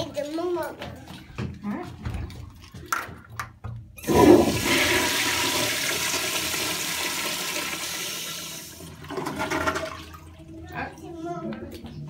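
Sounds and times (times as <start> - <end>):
toilet flush clicks: 4.0 - 10.2
toilet water rushing: 4.0 - 10.6.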